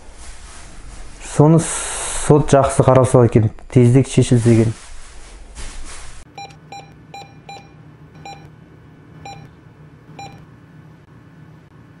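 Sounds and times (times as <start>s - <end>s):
low steady hum: 0.0s - 12.0s
short electronic beeps: 6.4s - 8.5s, 9.2s - 9.5s, 10.2s - 10.4s.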